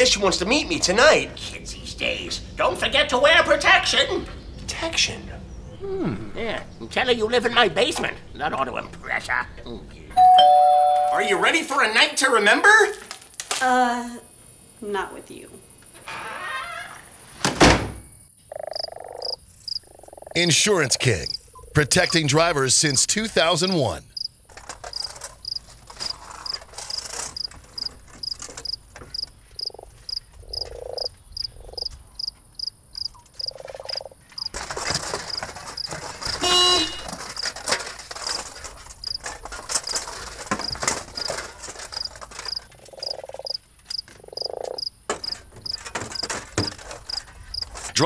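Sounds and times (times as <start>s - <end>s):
crickets chirping: 13.6s - 47.9s
frogs croaking: 18.1s - 36.8s, 40.6s - 47.8s
honk-like tone: 36.4s - 37.2s.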